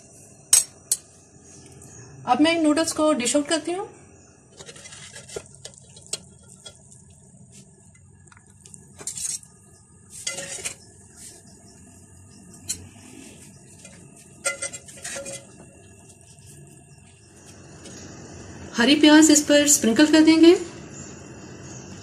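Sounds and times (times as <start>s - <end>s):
metal spoon scraping a pot: 4.5s - 6.9s, 9.0s - 9.5s, 10.1s - 11.4s, 12.6s - 16.5s.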